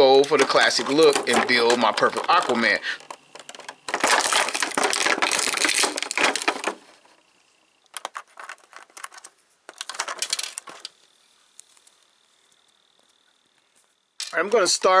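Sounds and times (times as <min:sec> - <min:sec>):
plastic packaging crinkling: 0:00.0 - 0:07.2, 0:07.9 - 0:11.9.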